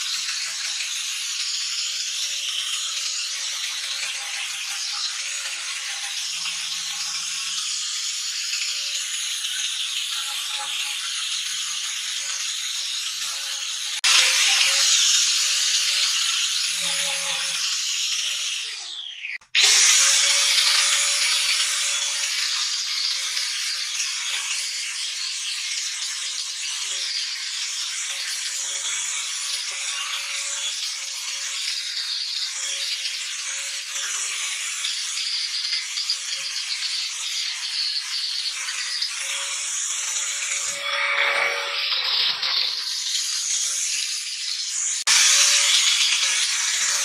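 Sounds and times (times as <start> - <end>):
angle grinder motor whine: 38.8 - 42.8.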